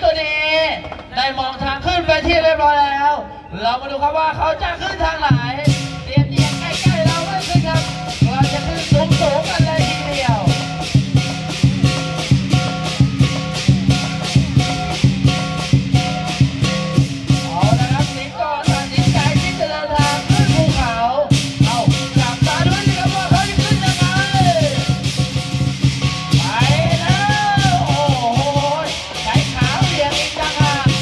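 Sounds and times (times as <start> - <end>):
drum beat: 5.2 - 31.0
cymbal crashes: 5.7 - 20.6, 21.3 - 31.0.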